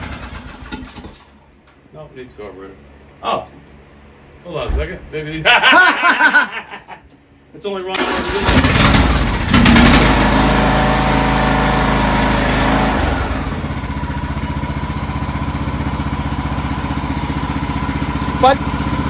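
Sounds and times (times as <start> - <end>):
riding mower engine running: 0.0 - 1.3, 8.0 - 19.0.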